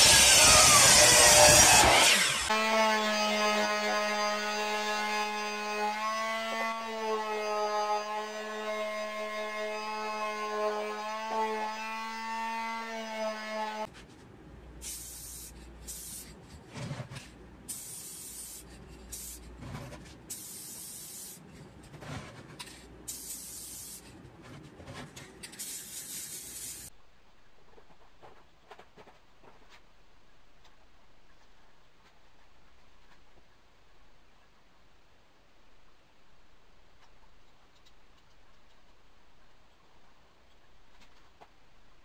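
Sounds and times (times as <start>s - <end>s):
electric palm sander running: 0.0s - 4.3s
aerosol spray can hissing: 14.8s - 16.3s, 17.7s - 19.4s, 20.3s - 21.4s, 23.1s - 24.0s, 25.6s - 26.9s.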